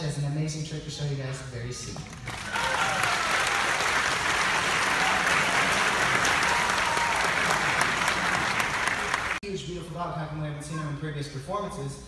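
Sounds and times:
audience clapping: 2.0 - 9.4.

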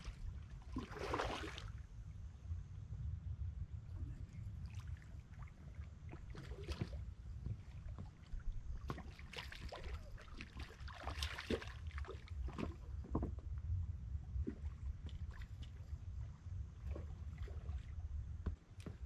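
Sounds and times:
low outdoor rumble: 0.0 - 11.1, 11.7 - 19.0.

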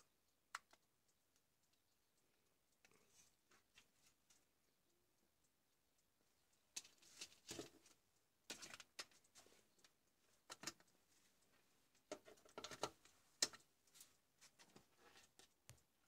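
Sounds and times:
small plastic parts clicking: 8.5 - 11.0.

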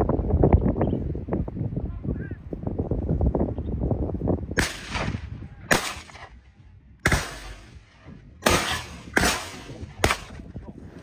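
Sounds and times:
gunshots with echo: 4.6 - 6.4, 7.0 - 10.4.

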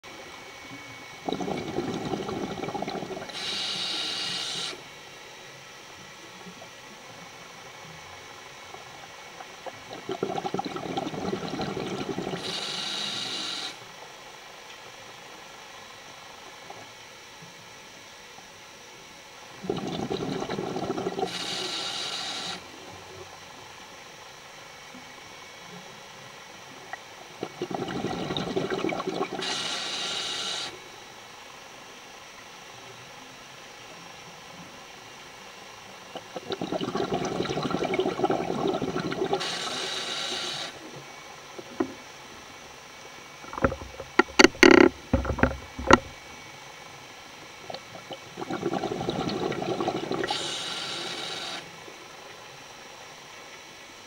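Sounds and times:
exhaled bubbles underwater: 0.7 - 4.9, 8.5 - 13.8, 19.5 - 23.5, 26.9 - 30.7, 36.1 - 42.1, 43.3 - 46.2, 47.6 - 51.8
regulator hiss: 1.2 - 5.2, 11.2 - 14.0, 19.5 - 23.3, 27.3 - 31.1, 36.1 - 46.4, 47.2 - 52.3
diver breathing through regulator: 1.3 - 4.8, 11.8 - 13.8, 19.7 - 22.6, 29.4 - 30.8, 39.1 - 40.8, 50.1 - 51.6.

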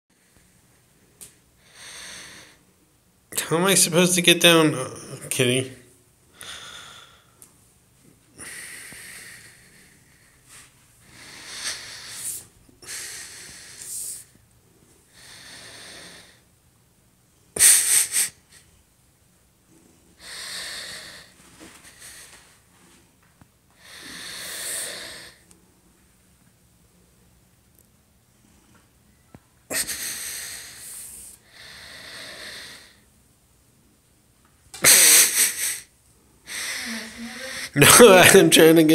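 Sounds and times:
person wheezing exhalations: 36.5 - 37.8.

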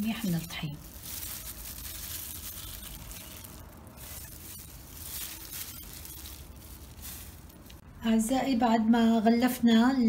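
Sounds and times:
flour rustling: 0.0 - 7.8
plastic glove rustling: 0.0 - 7.9.

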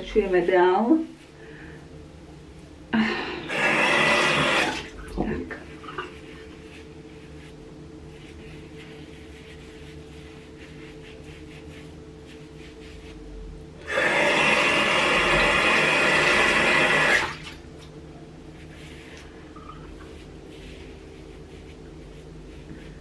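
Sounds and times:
faint low hum: 0.0 - 23.0
tap water running hard: 3.5 - 5.0, 13.8 - 17.5.

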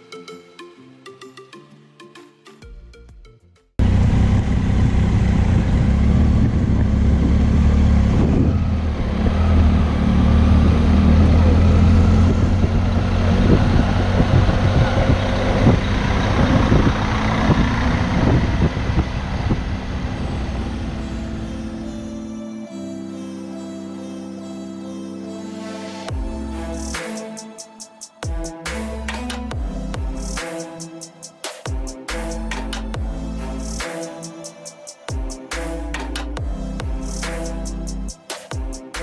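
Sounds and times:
motorcycle engine rumble: 3.8 - 21.9
wind noise on microphone: 6.0 - 9.6, 10.4 - 20.9.

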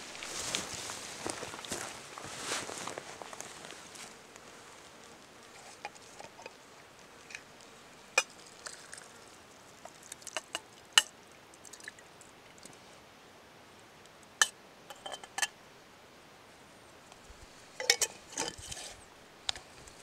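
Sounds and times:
glass jar clinking on metal pot: 14.9 - 15.5, 17.8 - 18.6.

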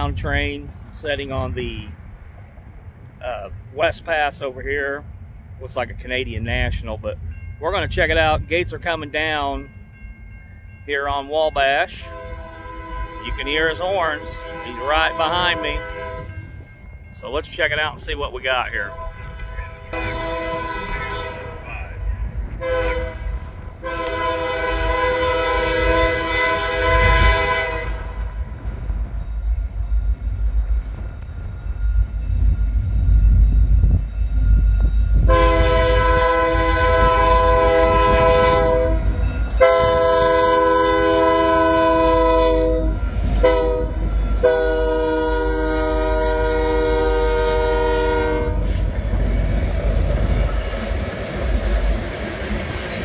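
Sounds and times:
train rumbling: 0.0 - 53.0
locomotive air horn blasts: 12.0 - 16.6, 18.8 - 28.5, 35.2 - 49.3.

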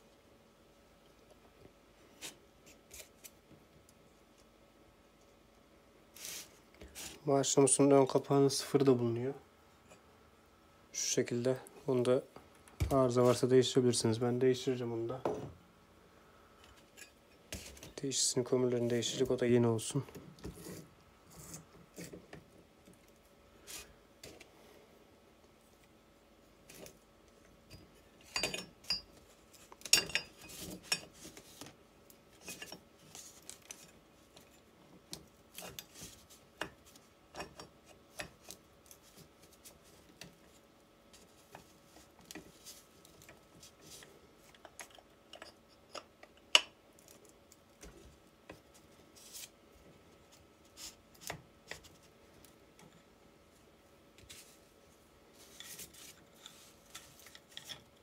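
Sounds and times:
faint steady hum: 0.0 - 58.0.

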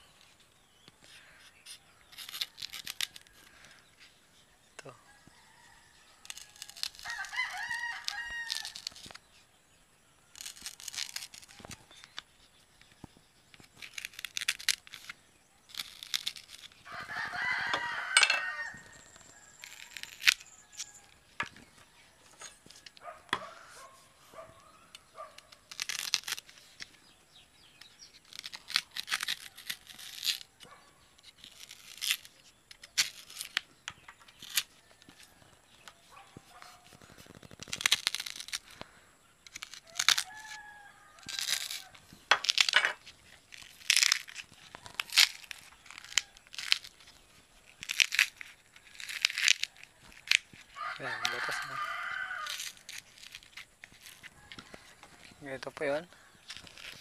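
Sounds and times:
knife cutting banana stalk: 1.1 - 3.4, 10.4 - 12.2, 22.4 - 24.6, 27.8 - 38.8, 39.5 - 47.2, 47.8 - 55.8
rooster crowing: 5.0 - 8.8, 16.9 - 21.2, 39.8 - 42.0, 50.7 - 52.8, 54.2 - 55.3.

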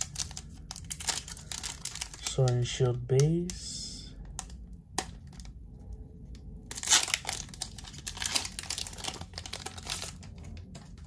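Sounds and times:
foil wrapper crinkling and tearing: 0.0 - 2.7, 6.6 - 11.0.

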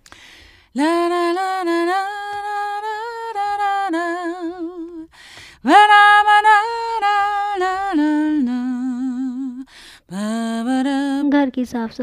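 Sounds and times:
woman singing wordless tune: 0.6 - 11.6.

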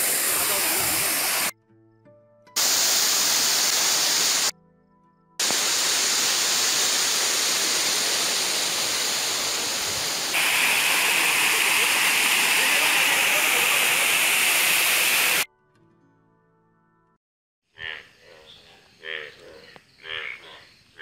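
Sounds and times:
waterfall rushing water: 0.0 - 1.5, 2.6 - 4.5, 5.4 - 15.4.

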